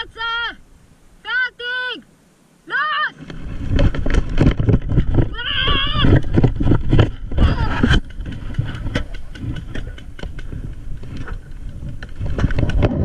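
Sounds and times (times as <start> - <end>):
high wavering yells: 2.7 - 3.2.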